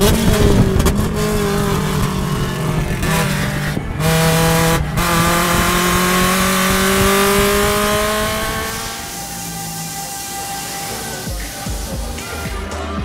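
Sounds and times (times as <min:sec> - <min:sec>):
race car engine accelerating: 0:00.0 - 0:13.0.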